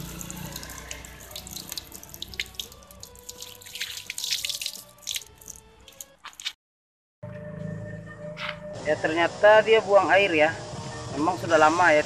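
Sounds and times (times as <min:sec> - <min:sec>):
water splattering on wood: 0:00.0 - 0:06.6.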